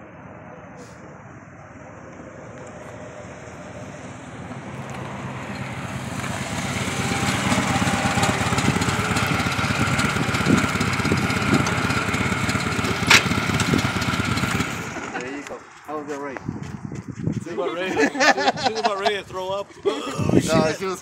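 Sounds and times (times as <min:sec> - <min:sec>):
motorcycle engine approaching: 0:01.5 - 0:17.4.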